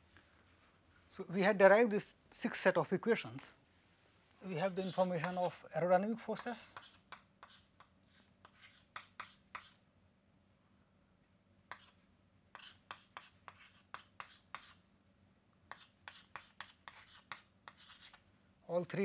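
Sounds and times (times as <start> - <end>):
chalk tapping and scratching: 4.5 - 9.8, 11.7 - 14.8, 15.7 - 18.2.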